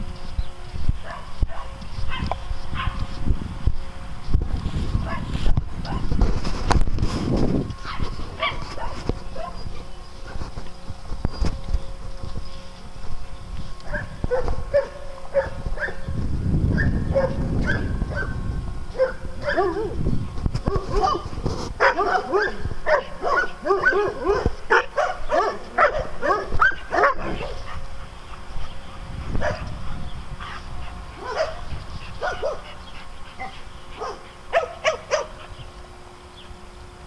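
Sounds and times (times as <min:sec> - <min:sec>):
dogs barking and yipping: 0:01.0 - 0:03.1, 0:05.0 - 0:06.2, 0:07.8 - 0:10.6, 0:13.8 - 0:16.1, 0:16.7 - 0:35.7.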